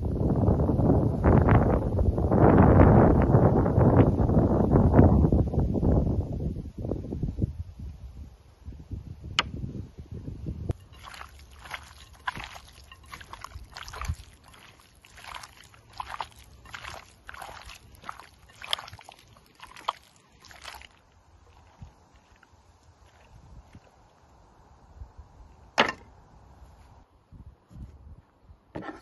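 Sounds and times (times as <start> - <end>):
chicken squelching in marinade: 10.8 - 23.3.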